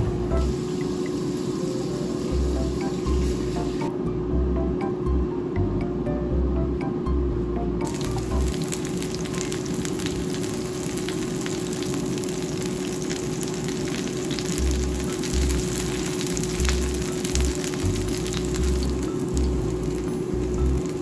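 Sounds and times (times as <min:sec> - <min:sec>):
fritters sizzling in hot oil: 0:07.8 - 0:21.0.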